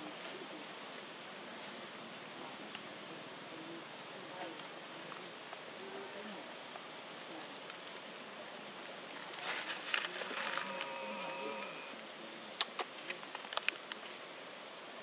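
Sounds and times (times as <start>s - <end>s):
flying insect buzzing: 10.4s - 12.0s
sharp clicks and crackles: 12.6s - 14.2s.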